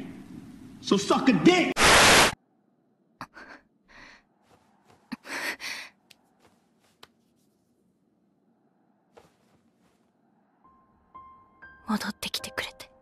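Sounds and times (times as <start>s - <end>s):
person breathing and gasping: 5.1s - 6.0s.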